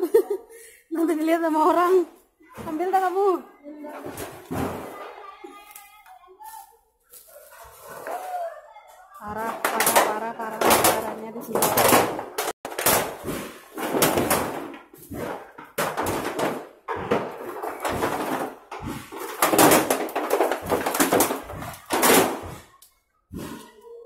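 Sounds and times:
metal roofing sheets clattering: 1.6 - 5.5, 9.2 - 22.8.

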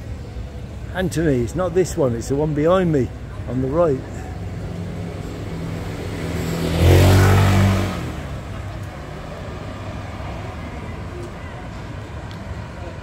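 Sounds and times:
vehicle passing by: 4.4 - 11.3.

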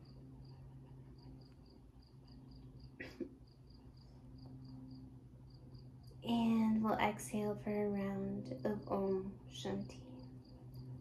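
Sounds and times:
cricket chirping: 0.0 - 6.3, 10.0 - 11.0
low steady hum: 0.0 - 11.0.

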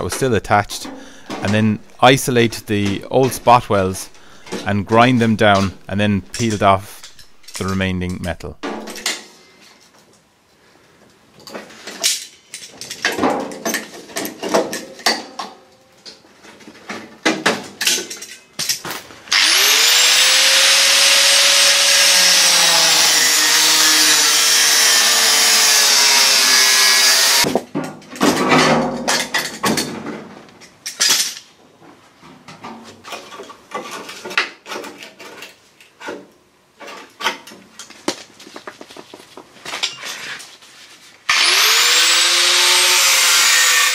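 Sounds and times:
angle grinder grinding: 19.3 - 27.5, 41.3 - 43.9.

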